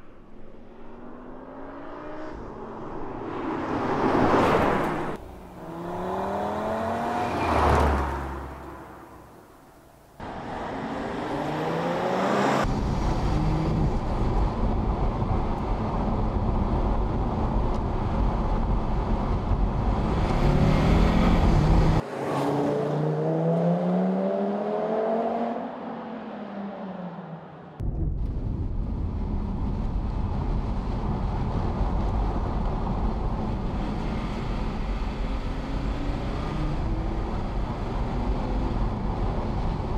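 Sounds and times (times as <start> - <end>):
road and wind rumble: 0.0 - 39.9
car passing close by: 0.8 - 13.6, 20.1 - 27.8
car engine accelerating hard: 3.7 - 27.3, 31.5 - 39.9.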